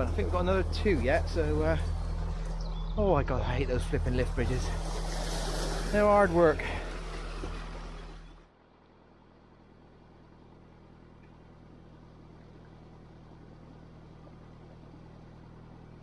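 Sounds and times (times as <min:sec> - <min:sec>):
rushing noise: 0:00.0 - 0:08.5
boat engine humming: 0:00.0 - 0:08.6.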